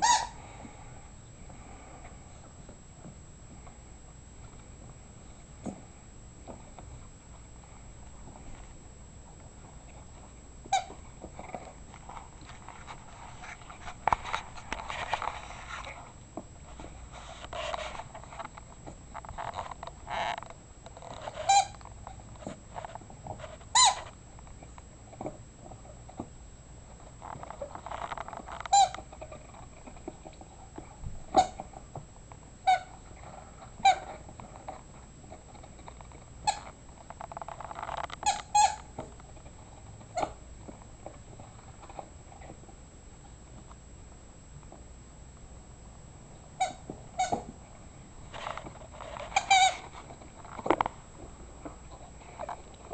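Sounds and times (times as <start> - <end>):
squeaky toy squeaks: 0.0 - 0.4, 21.4 - 21.7, 23.7 - 24.0, 28.7 - 28.9, 38.2 - 38.9, 46.6 - 47.4, 49.4 - 49.8
dog gnawing and rustling: 0.4 - 44.9, 46.2 - 52.9.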